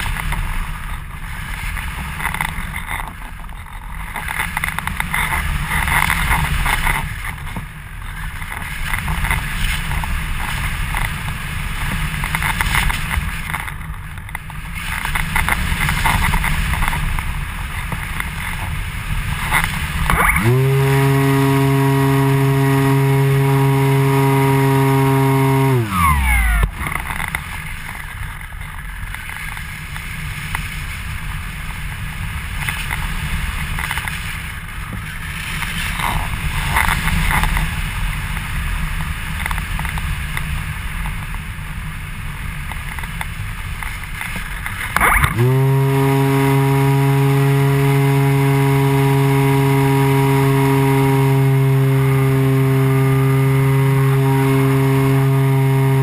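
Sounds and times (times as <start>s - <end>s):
model glider motor and propeller: 0.0s - 56.0s.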